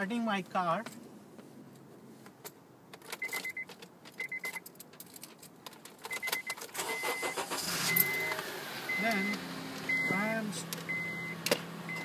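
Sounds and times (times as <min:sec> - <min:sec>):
car keys jangling: 0:02.9 - 0:08.5
car warning chime beeping: 0:03.2 - 0:04.6, 0:06.1 - 0:12.0.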